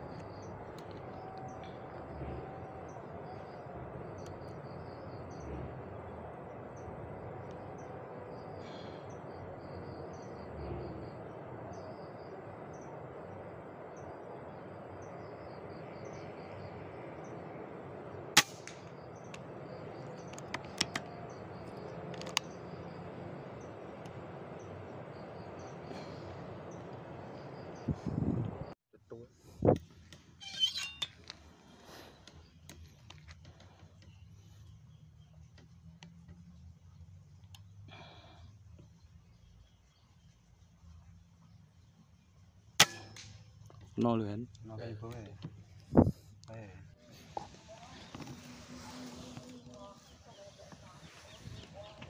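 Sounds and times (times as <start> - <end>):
air rifle shot: 18.4 - 18.8.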